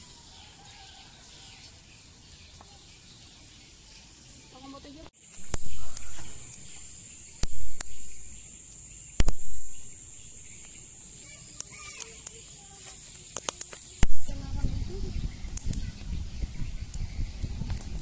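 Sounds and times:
insects droning: 0:00.0 - 0:18.0
wood fire crackling pops: 0:05.2 - 0:18.0.

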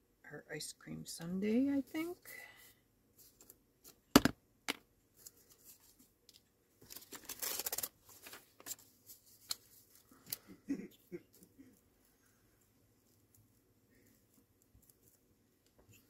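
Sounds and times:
paper rustling: 0:05.2 - 0:10.4.

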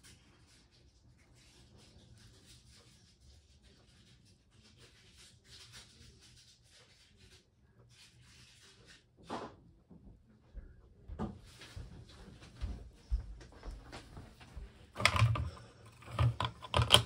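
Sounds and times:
faint rustling and handling: 0:11.4 - 0:17.0.

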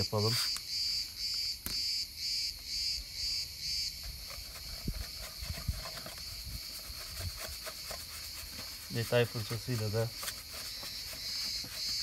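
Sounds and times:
hand rubbing hubcap: 0:04.0 - 0:12.0.

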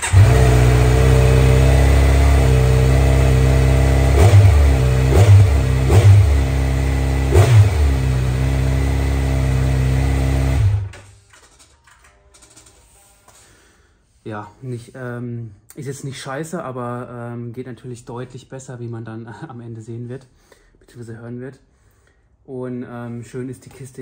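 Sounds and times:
motorcycle engine revving: 0:00.0 - 0:10.9.

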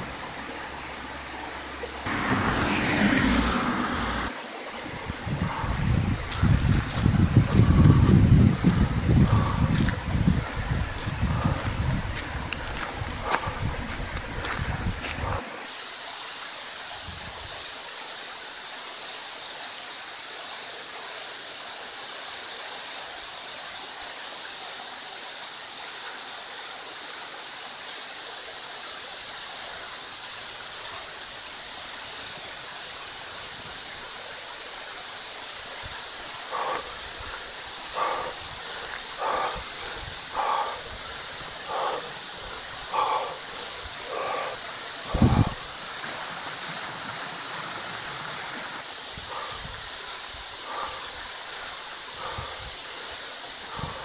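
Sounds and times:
rushing water: 0:00.0 - 0:54.0
short animal calls: 0:36.5 - 0:45.6.

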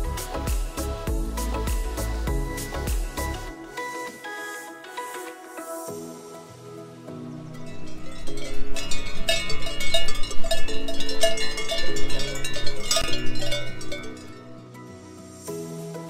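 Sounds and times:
soft background music: 0:00.0 - 0:16.0
cowbells clanging: 0:07.6 - 0:14.7.

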